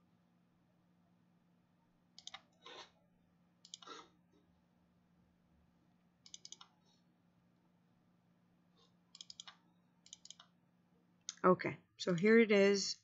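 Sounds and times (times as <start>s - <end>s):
computer mouse clicks: 2.2s - 2.9s, 3.6s - 4.0s, 6.2s - 6.8s, 9.1s - 10.6s.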